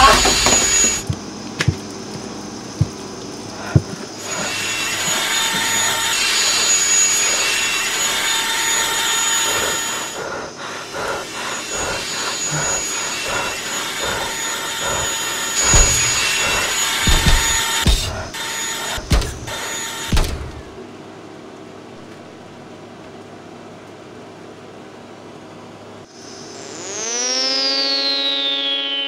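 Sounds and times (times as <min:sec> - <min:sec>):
robot machine whirring and grinding: 0:00.0 - 0:01.0, 0:04.3 - 0:20.8
rasping sawing strokes: 0:04.2 - 0:20.7
heavy low thuds: 0:15.7 - 0:18.3, 0:19.0 - 0:20.8.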